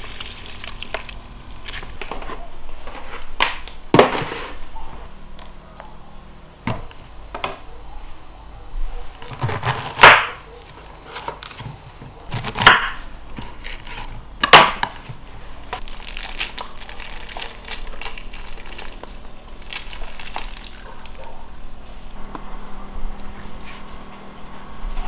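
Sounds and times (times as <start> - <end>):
fruit crackling and squishing: 0.0 - 3.8, 12.2 - 22.2.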